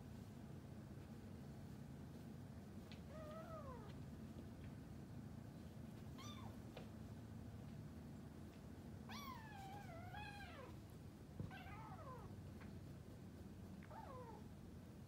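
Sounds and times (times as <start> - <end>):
kitten meowing: 6.2 - 6.5.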